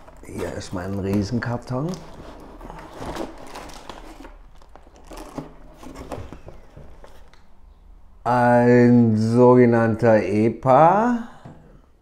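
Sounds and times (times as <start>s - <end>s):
cardboard rustling and scraping: 0.0s - 7.4s.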